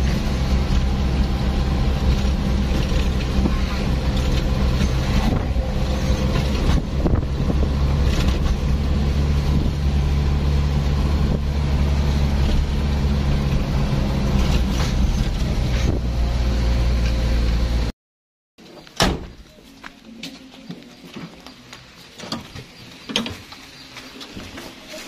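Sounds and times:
engine hum: 0:00.0 - 0:17.9
road noise: 0:00.0 - 0:17.9, 0:18.6 - 0:25.0.

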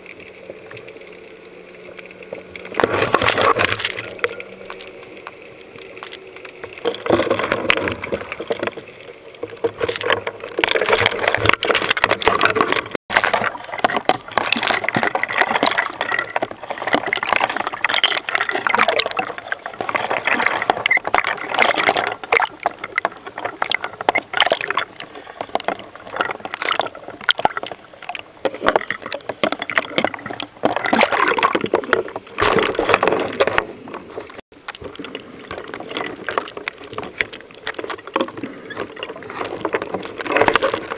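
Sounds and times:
water sloshing and splashing: 0:00.0 - 0:40.9.

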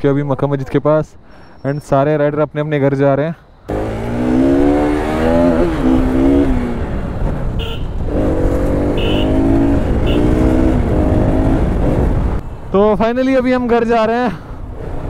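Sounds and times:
motorcycle engine revving: 0:03.7 - 0:12.4
wind noise: 0:03.9 - 0:12.7.

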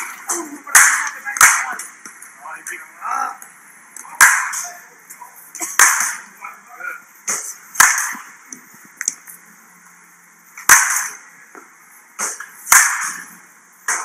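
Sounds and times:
bat cracking against ball: 0:00.0 - 0:02.2, 0:04.2 - 0:04.7, 0:05.6 - 0:06.3, 0:07.3 - 0:08.4, 0:10.6 - 0:14.0.

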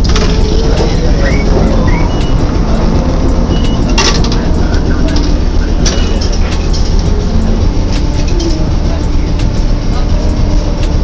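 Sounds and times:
streetcar rumbling on rails: 0:00.0 - 0:11.0
high squeals: 0:00.4 - 0:06.7.

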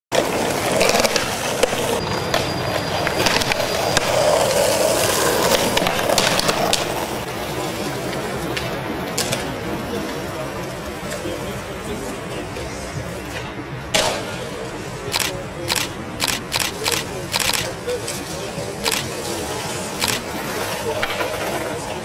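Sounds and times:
skateboard wheels rolling on stone: 0:00.1 - 0:11.6, 0:16.3 - 0:22.0
skateboard clacks on ground: 0:00.2 - 0:11.3, 0:13.3 - 0:14.5, 0:18.9 - 0:22.0.

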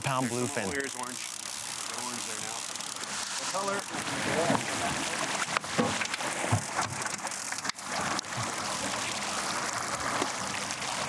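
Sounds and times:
outboard motors running: 0:00.0 - 0:11.0
wind and water rushing: 0:03.0 - 0:11.0.

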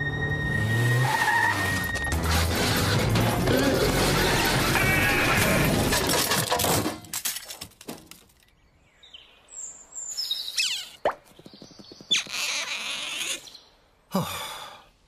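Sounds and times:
quick rising squeaks: 0:10.6 - 0:13.5.

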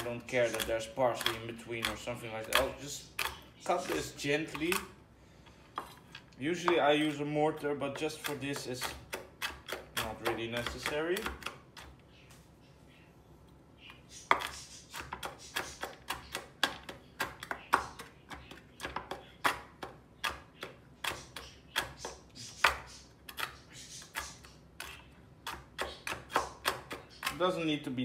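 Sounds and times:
knife chopping on wooden board: 0:00.0 - 0:04.9, 0:07.9 - 0:11.9, 0:14.3 - 0:27.6.

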